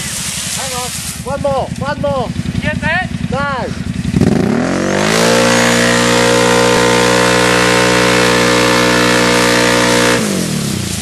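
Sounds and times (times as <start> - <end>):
wheels spinning in mud: 0.0 - 3.2, 4.0 - 11.0
quad bike engine revving: 0.0 - 11.0.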